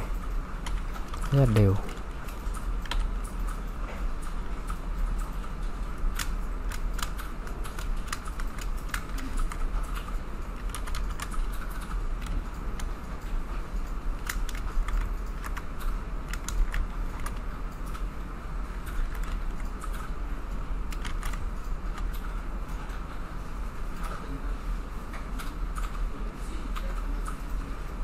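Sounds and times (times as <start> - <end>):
keyboard and mouse clicks: 0.2 - 18.1, 18.8 - 20.2, 20.9 - 23.0.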